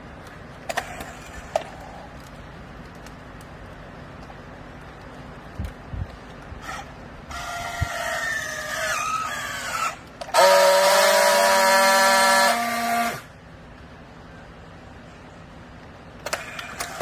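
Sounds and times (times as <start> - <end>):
strapping tool motor whining: 6.6 - 13.3
strapping tool welding buzz: 10.2 - 13.3.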